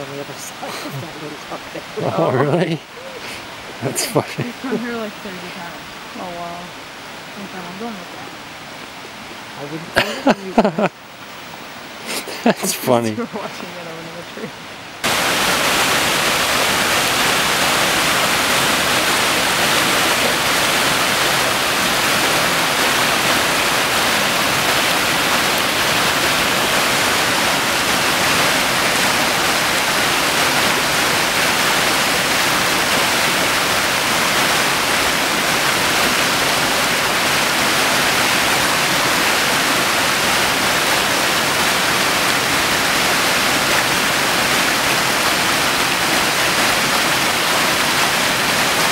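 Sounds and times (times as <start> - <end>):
creek and waterfall running: 0.0 - 48.9.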